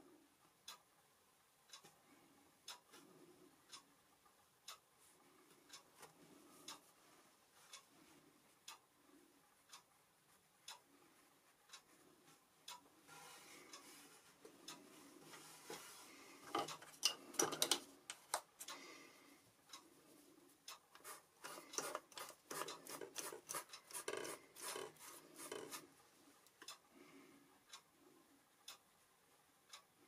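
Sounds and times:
clock ticking: 0:00.0 - 0:30.0
paintbrush rubbing and tapping: 0:21.0 - 0:25.9.

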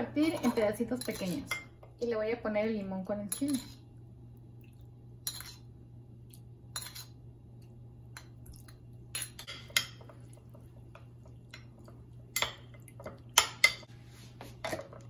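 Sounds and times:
metal spoon clinking on dishes: 0:00.2 - 0:01.7, 0:03.3 - 0:03.8, 0:05.2 - 0:05.7, 0:06.7 - 0:07.2, 0:09.1 - 0:10.2.

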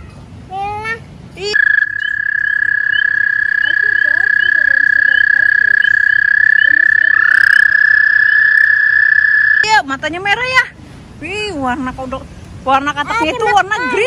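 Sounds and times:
toad trilling: 0:01.5 - 0:09.8
second toad trill rising: 0:01.6 - 0:09.7.

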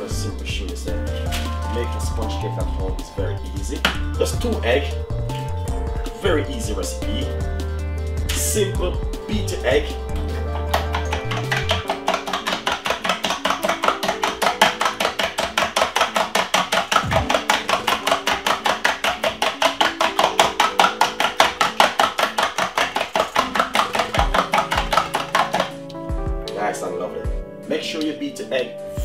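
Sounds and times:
fork beating eggs in metal bowl: 0:10.7 - 0:25.8.

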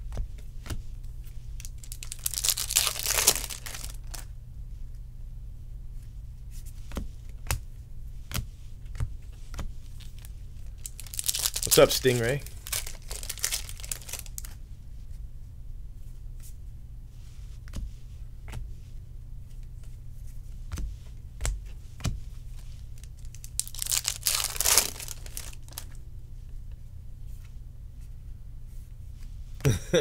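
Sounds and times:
faint low hum: 0:00.0 - 0:30.0
cards being shuffled: 0:01.5 - 0:04.3, 0:08.3 - 0:14.6, 0:20.7 - 0:26.0
wrappers tearing and crinkling: 0:01.6 - 0:04.2, 0:10.0 - 0:14.5, 0:23.0 - 0:26.0.

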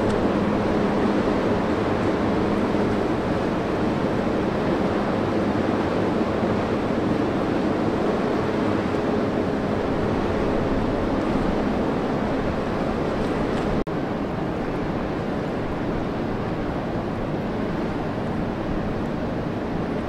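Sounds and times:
held humming tones: 0:00.0 - 0:13.8
ship engines droning: 0:00.0 - 0:20.0
water noise: 0:00.0 - 0:20.0
wind on microphone: 0:00.0 - 0:20.0.

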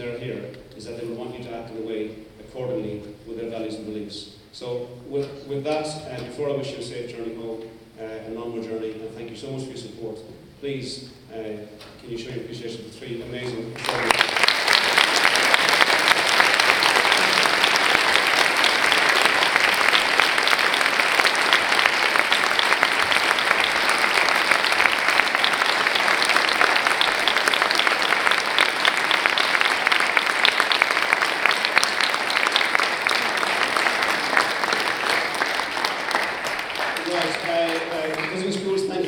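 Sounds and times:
large audience applauding: 0:13.8 - 0:39.0.

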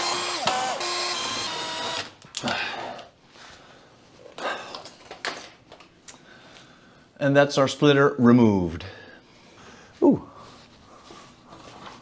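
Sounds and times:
cordless drill motor whine: 0:00.0 - 0:02.2.

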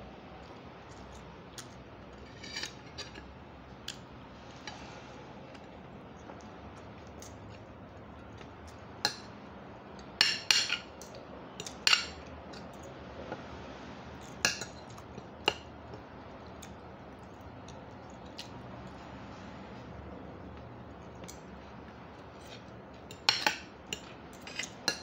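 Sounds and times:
cutlery clinking on a plate: 0:02.1 - 0:03.3, 0:10.2 - 0:10.9, 0:22.4 - 0:25.0.

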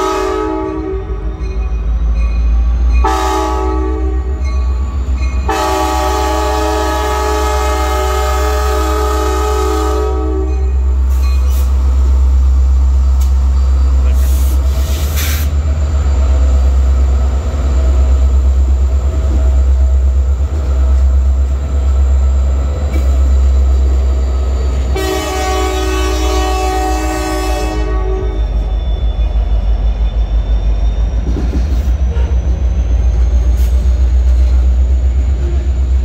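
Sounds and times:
locomotive horn chord: 0:00.0 - 0:01.2, 0:03.0 - 0:04.4, 0:05.4 - 0:10.8, 0:24.9 - 0:28.5
diesel locomotives rumbling past: 0:00.0 - 0:36.0
train wheels clanking: 0:10.3 - 0:24.9, 0:28.3 - 0:36.0.

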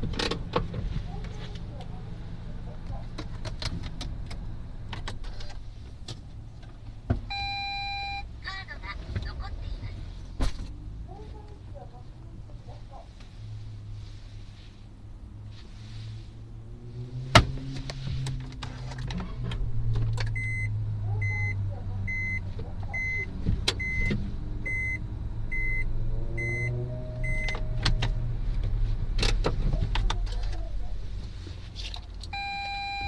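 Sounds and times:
car engine idling: 0:00.0 - 0:16.7
reverse warning beeps: 0:07.3 - 0:08.3, 0:20.4 - 0:22.4, 0:23.0 - 0:24.1, 0:24.7 - 0:27.6, 0:32.3 - 0:33.0.

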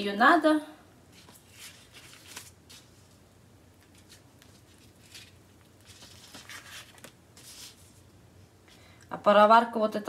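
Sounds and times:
dough rustling on paper: 0:01.1 - 0:03.2, 0:03.8 - 0:08.1.

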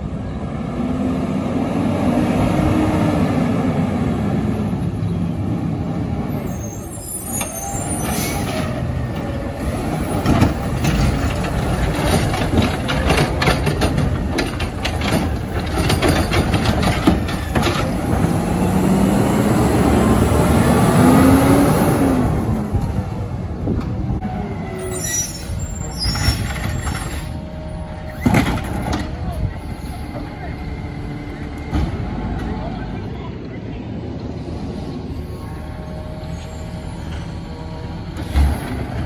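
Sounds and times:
garbage truck clanks and clatters: 0:07.3 - 0:18.8, 0:25.9 - 0:30.5
truck engine revving: 0:17.8 - 0:22.8.

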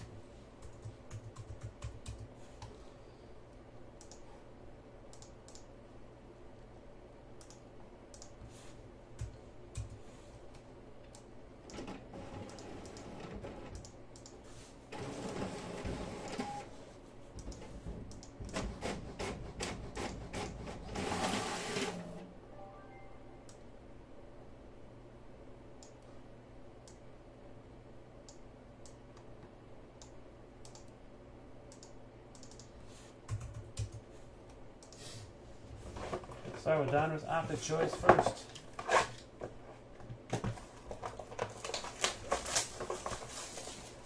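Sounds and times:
keyboard and mouse clicks: 0:00.6 - 0:02.8, 0:04.0 - 0:04.3, 0:05.1 - 0:05.7, 0:07.4 - 0:08.4, 0:09.2 - 0:14.4, 0:17.4 - 0:18.7, 0:30.0 - 0:31.0, 0:31.7 - 0:34.1
rustling handling noise: 0:35.8 - 0:44.0.

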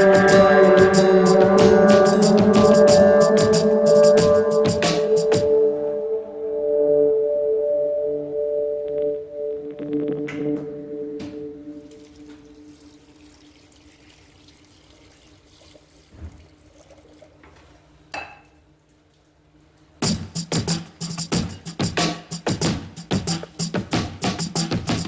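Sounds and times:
rhythmic percussive beat: 0:00.0 - 0:05.6, 0:20.0 - 0:25.0
ringing tone: 0:00.0 - 0:11.9
water poured into a pot: 0:11.8 - 0:17.5.

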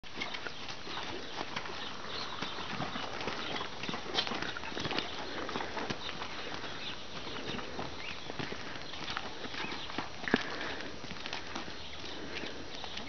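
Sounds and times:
horse hooves clopping on gravel: 0:00.0 - 0:13.0
person's footsteps: 0:00.0 - 0:13.0.

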